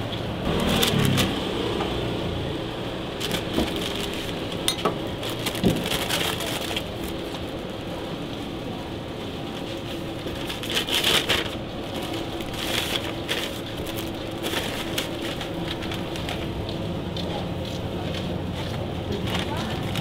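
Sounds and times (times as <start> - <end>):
paper wrapping crinkling: 3.2 - 7.2, 10.2 - 16.6, 19.1 - 20.0.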